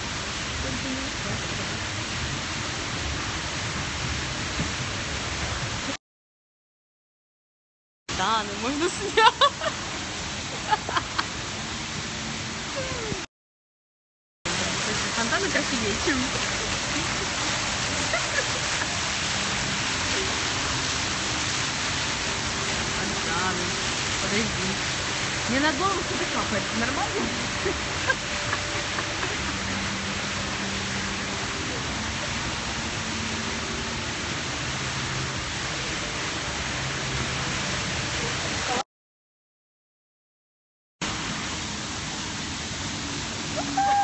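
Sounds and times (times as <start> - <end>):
fountain splashing into pool: 0.0 - 6.0, 8.2 - 13.2, 14.5 - 38.8, 41.0 - 44.0
rushing hiss: 14.5 - 33.8, 41.0 - 44.0.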